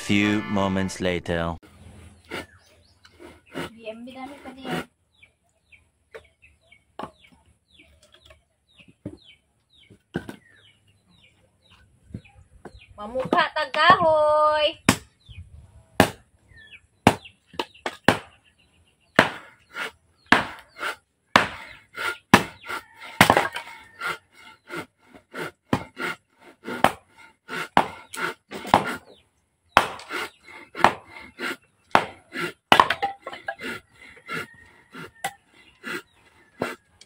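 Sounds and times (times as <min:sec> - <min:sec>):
hatchet chopping wood: 0:14.8 - 0:15.1, 0:16.0 - 0:16.3, 0:17.0 - 0:18.4, 0:19.2 - 0:36.0.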